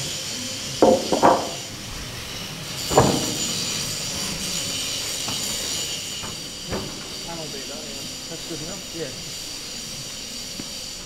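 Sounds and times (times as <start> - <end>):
steady mechanical hum: 0.0 - 11.0
heavy knock: 0.8 - 1.7, 2.9 - 3.5
light knocks of timber and steel: 0.8 - 1.7, 2.9 - 3.6.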